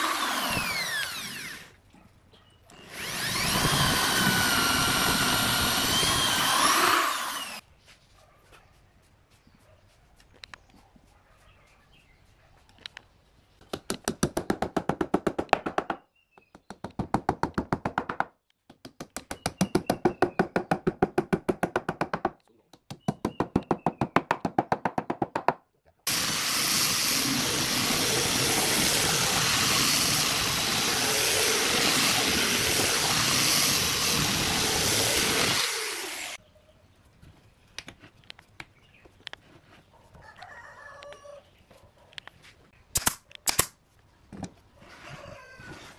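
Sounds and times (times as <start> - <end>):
power tool running: 0.0 - 1.8, 2.8 - 7.6, 26.1 - 36.4.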